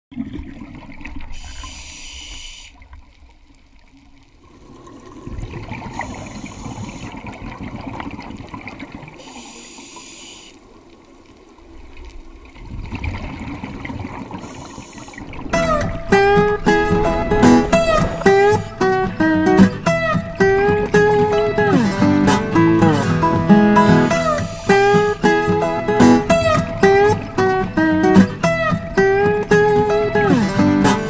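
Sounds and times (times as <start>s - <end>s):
hissing regulator inhale: 1.4s - 2.8s, 5.9s - 7.2s, 9.2s - 10.6s, 14.4s - 15.4s, 24.1s - 25.4s
bubbling exhale: 4.5s - 8.2s, 12.6s - 20.1s, 24.1s - 25.4s.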